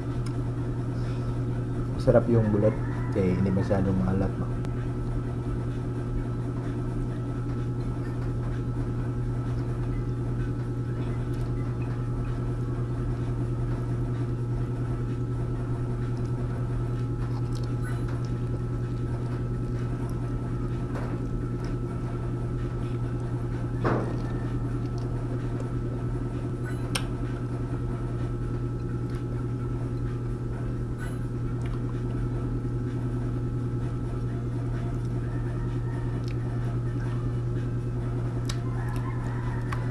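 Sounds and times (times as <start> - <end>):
low hum: 0.0 - 39.9
clicks and taps of eating: 31.6 - 32.2, 36.1 - 37.1.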